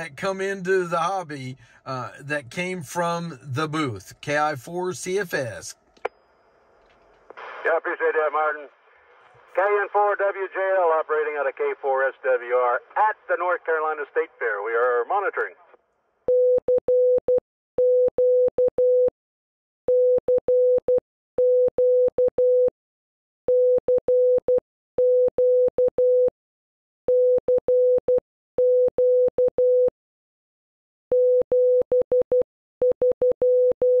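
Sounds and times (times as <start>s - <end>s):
morse code beeps: 31.1s - 34.0s.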